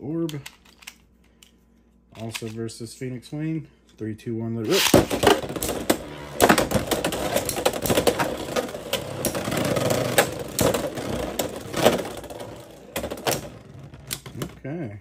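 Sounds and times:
spinning tops whirring: 0:04.7 - 0:14.3.

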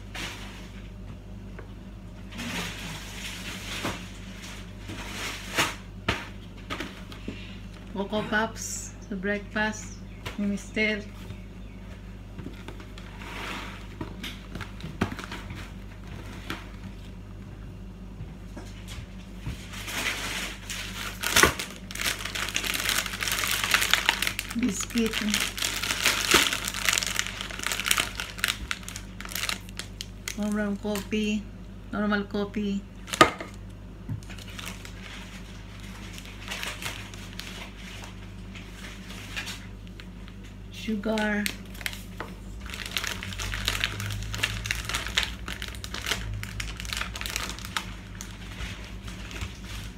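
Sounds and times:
steady low hum: 0:00.0 - 0:49.9
packets and tins being handled: 0:19.8 - 0:31.1, 0:41.2 - 0:49.9
items knocking on counter: 0:33.2 - 0:34.2.

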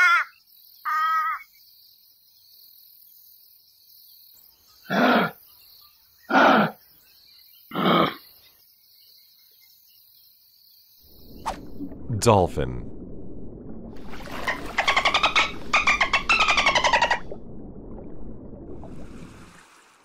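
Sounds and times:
insects chirring: 0:14.0 - 0:17.4.

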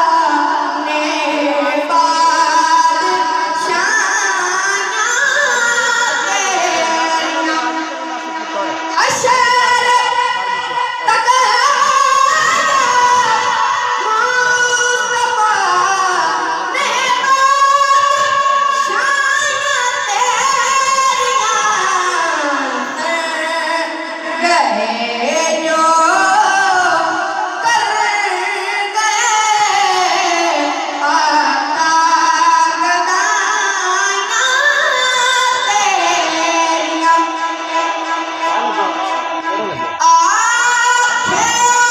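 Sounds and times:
boy singing into a microphone: 0:00.0 - 0:41.9
man singing devotional song: 0:37.4 - 0:40.0.

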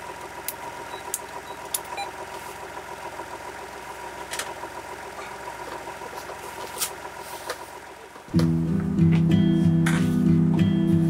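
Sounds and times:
boat engine idling: 0:00.0 - 0:08.3.

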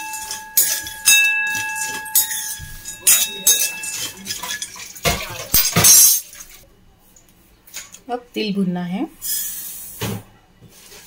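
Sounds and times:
spoon striking metal bowl: 0:00.0 - 0:06.2
metal bowl ringing: 0:00.0 - 0:06.3
peanuts rattling against metal: 0:00.0 - 0:06.6.

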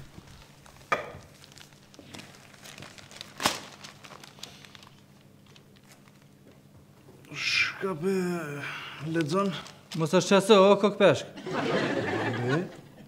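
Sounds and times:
newspaper pages rustling: 0:00.0 - 0:06.4, 0:09.0 - 0:10.4.

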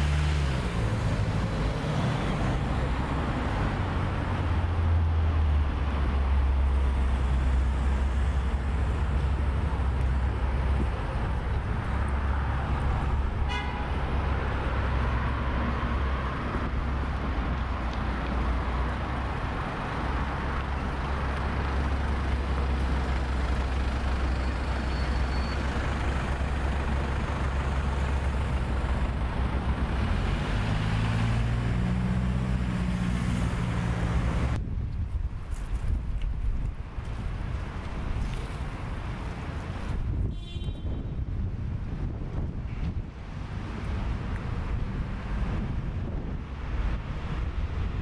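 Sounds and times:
vehicle engine drone: 0:00.0 - 0:40.2
road traffic noise: 0:00.0 - 0:48.0
wind rumble on microphone: 0:26.4 - 0:48.0.

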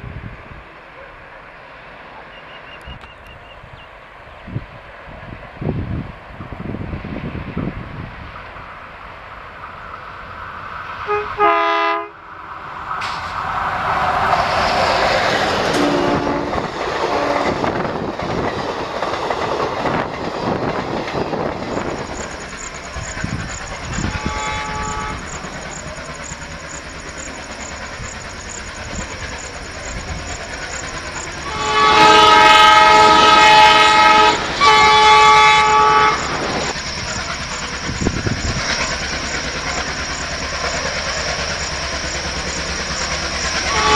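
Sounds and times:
train rumbling: 0:00.0 - 0:43.9
locomotive air horn: 0:11.0 - 0:12.2, 0:15.7 - 0:17.6, 0:23.9 - 0:25.4, 0:31.4 - 0:36.4, 0:43.7 - 0:43.9.

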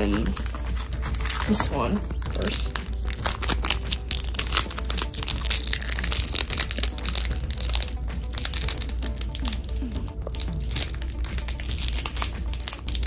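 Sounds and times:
foil wrapper crinkling: 0:00.0 - 0:13.0.

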